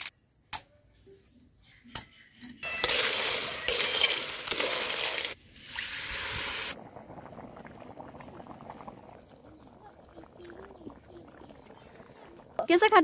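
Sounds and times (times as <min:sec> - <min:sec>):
snails clattering in hot wok: 0:02.6 - 0:05.4
curry bubbling: 0:04.4 - 0:13.0.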